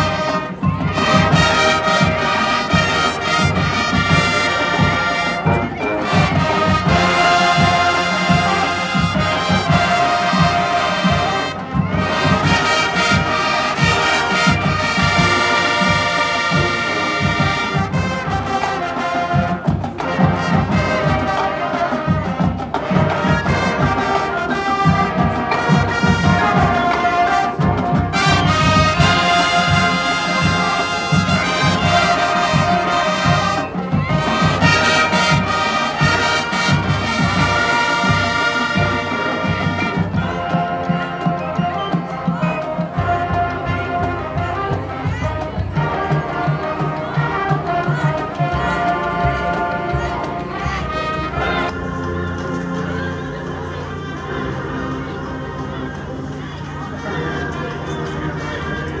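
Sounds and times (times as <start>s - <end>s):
brass sustaining chords: 0.0s - 59.0s
drumline steady beat: 0.0s - 59.0s.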